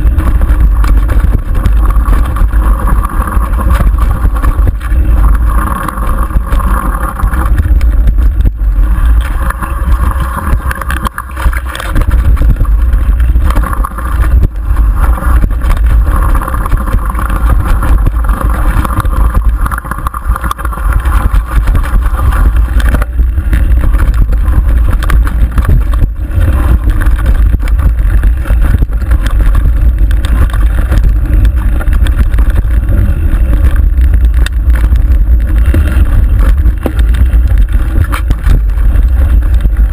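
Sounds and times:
wind rumble on microphone: 0.0s - 39.9s
bike rattling and knocking: 10.6s - 39.9s.

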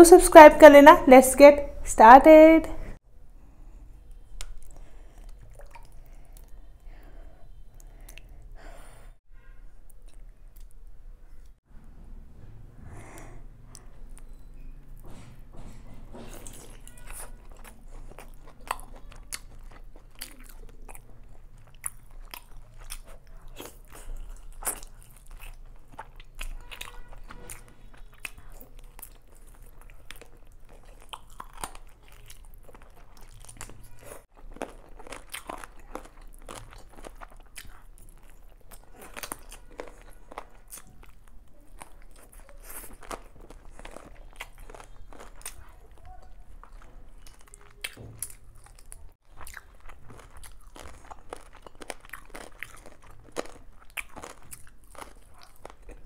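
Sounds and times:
person chewing food: 3.6s - 9.0s, 13.2s - 56.0s.

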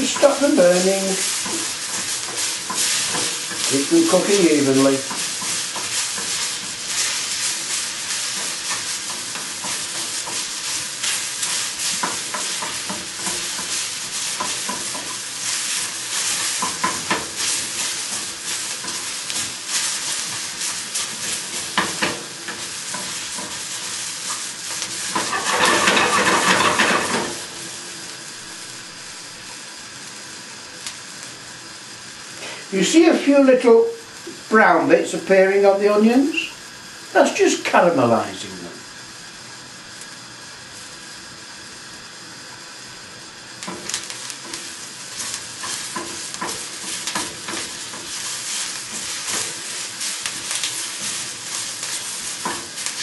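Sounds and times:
wooden spatula scraping a pan: 0.0s - 27.5s
onions sizzling in a frying pan: 0.0s - 53.0s.

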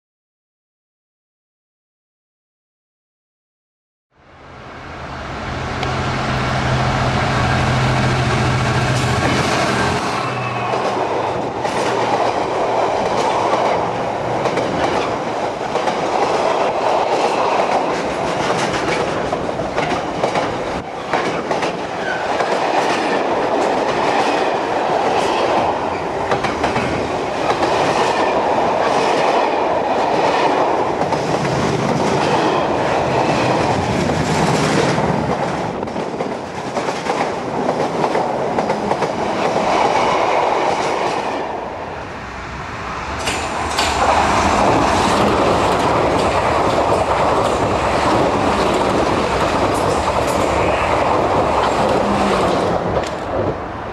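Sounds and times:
wheels clicking over rail joints: 43.2s - 53.4s
freight wagons rolling on rails: 43.2s - 53.5s.

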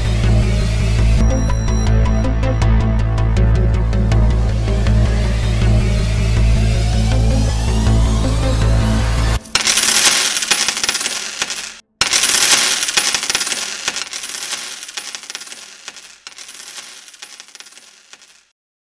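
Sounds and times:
coins pouring and jingling: 9.4s - 18.5s.

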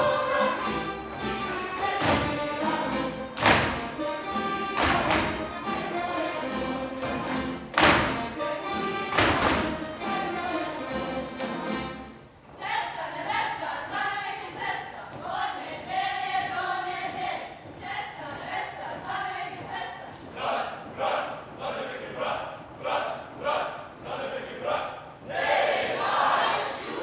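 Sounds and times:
group of voices singing: 0.0s - 11.9s, 12.5s - 27.0s
string band playing folk tune: 0.0s - 12.4s
boots stamping on stage floor: 1.2s - 10.0s.

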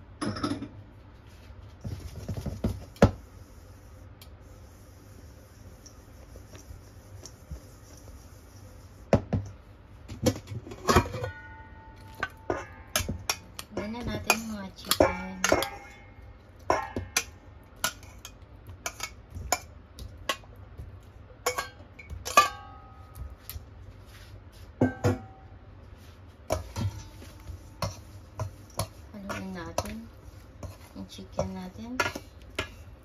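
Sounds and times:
metal mixing bowls clinking: 10.7s - 20.5s, 21.4s - 23.5s, 26.5s - 33.0s.

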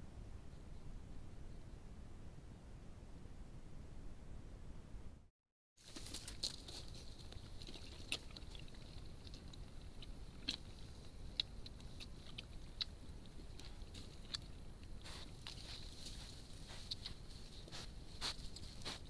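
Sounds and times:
piglets chewing and rooting: 5.8s - 19.0s.

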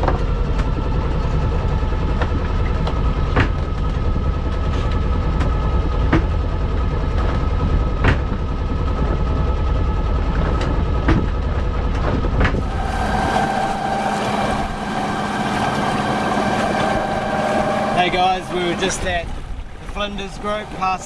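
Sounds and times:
boat engine running: 0.0s - 21.0s
wind: 0.0s - 21.0s
water noise: 12.6s - 21.0s.

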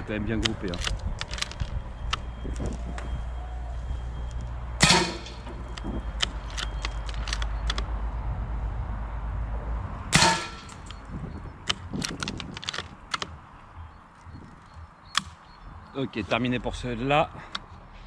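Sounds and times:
rifle shot: 4.8s - 5.4s, 10.1s - 10.8s
bullet striking steel plate: 4.8s - 5.7s, 10.1s - 11.0s
light clicks: 5.6s - 7.9s.

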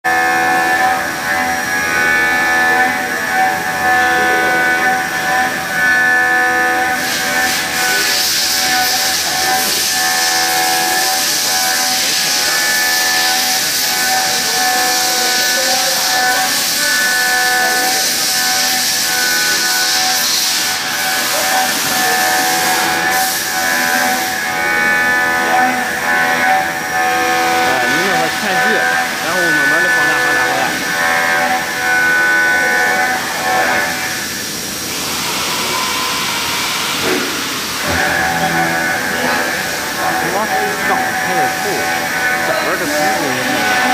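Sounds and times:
milling machine cutting metal: 0.1s - 43.9s
high cutting tones: 12.4s - 33.9s, 37.8s - 43.9s.

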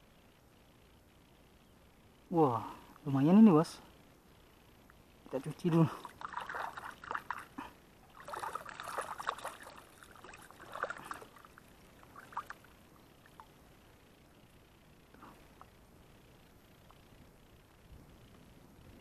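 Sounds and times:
water splashing: 5.4s - 13.5s
water dripping: 5.5s - 13.6s.

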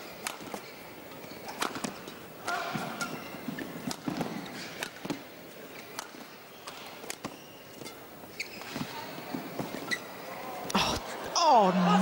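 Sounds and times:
shoes squeaking on court: 2.8s - 10.3s
crowd murmur: 10.6s - 12.0s.

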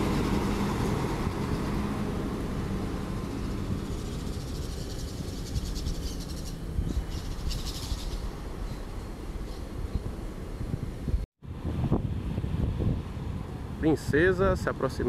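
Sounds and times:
bus diesel engine rumbling: 0.0s - 11.2s.

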